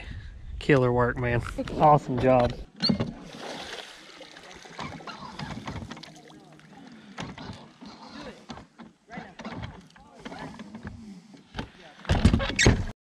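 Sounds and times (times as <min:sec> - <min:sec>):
water churning and splashing: 0:03.0 - 0:08.8.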